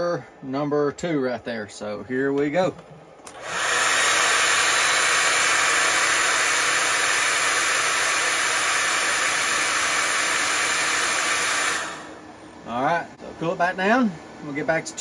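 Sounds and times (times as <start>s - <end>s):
faint motor hum: 0.0s - 15.0s
hot-air blower rushing: 3.1s - 15.0s.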